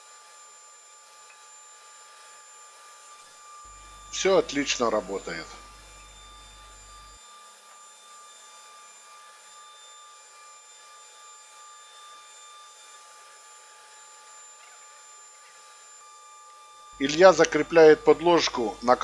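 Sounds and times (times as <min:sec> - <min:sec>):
stepper motors whining faintly: 0:03.6 - 0:07.2, 0:16.9 - 0:19.0.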